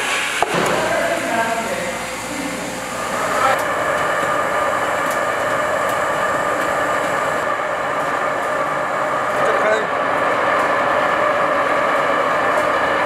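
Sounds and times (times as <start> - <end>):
steam hissing from rice steamer: 0.0 - 8.0
machine hum: 0.0 - 13.0.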